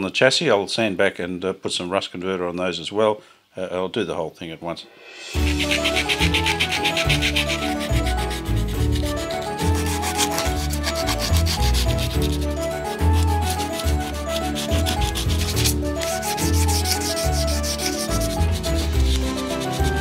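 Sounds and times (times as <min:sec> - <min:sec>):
background music: 0:04.9 - 0:20.0
hand sanding metal: 0:05.4 - 0:20.0.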